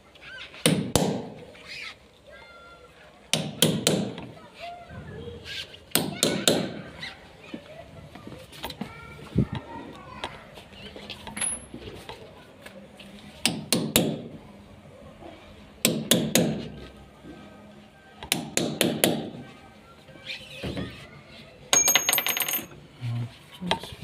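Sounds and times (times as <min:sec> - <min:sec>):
rattling metallic clinks: 0:21.8 - 0:22.7.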